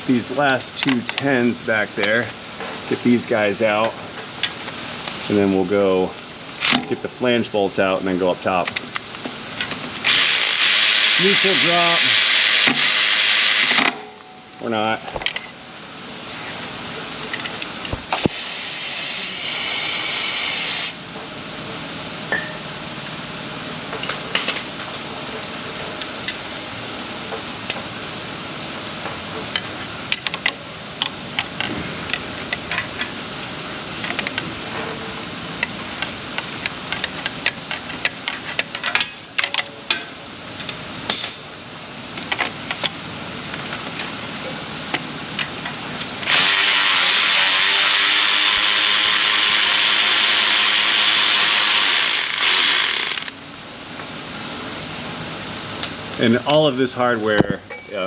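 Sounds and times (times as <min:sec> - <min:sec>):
cordless power tool spinning: 0:10.0 - 0:13.8, 0:46.2 - 0:53.4.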